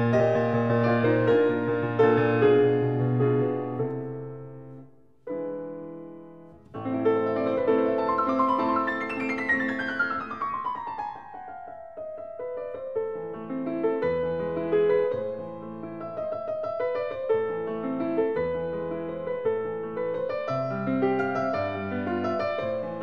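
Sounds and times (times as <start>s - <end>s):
gentle piano music: 0.0s - 23.0s.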